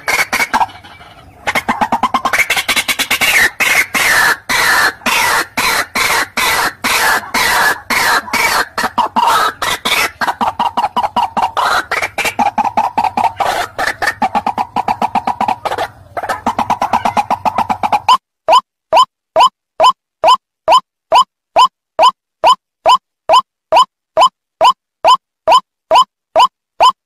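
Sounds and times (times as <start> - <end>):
bird harsh croaking call: 0.0 - 18.2.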